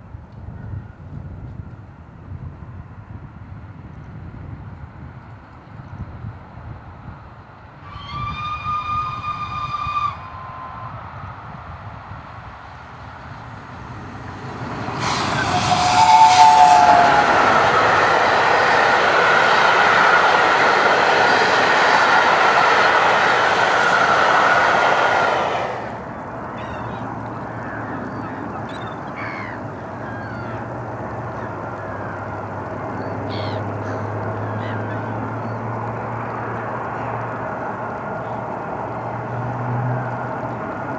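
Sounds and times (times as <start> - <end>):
train passing at speed: 0.0 - 40.9
steam locomotive whistle: 7.8 - 11.3, 14.3 - 26.2
birds chirping: 13.2 - 35.9.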